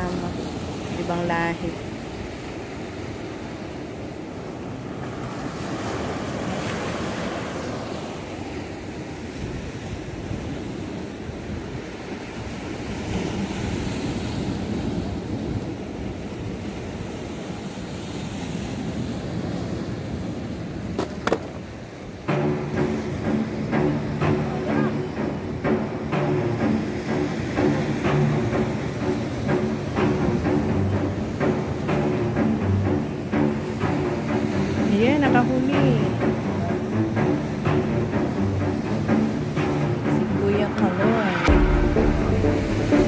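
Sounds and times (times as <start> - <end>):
waves breaking on rocks: 0.0 - 22.3.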